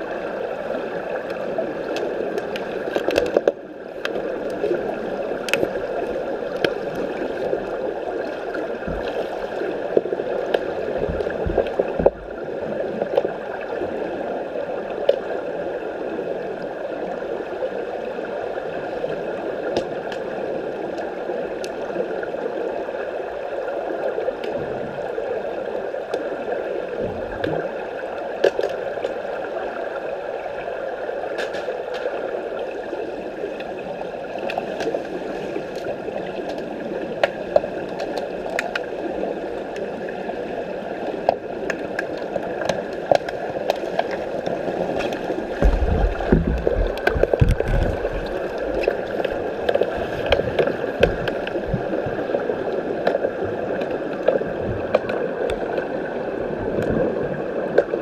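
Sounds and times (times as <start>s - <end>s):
underwater rushing gurgling water: 0.0s - 58.0s
sharp underwater clicks and knocks: 1.3s - 4.6s, 10.0s - 12.3s, 19.7s - 20.2s, 28.4s - 29.2s, 31.4s - 32.1s, 37.2s - 38.9s, 41.2s - 51.9s, 53.0s - 55.8s.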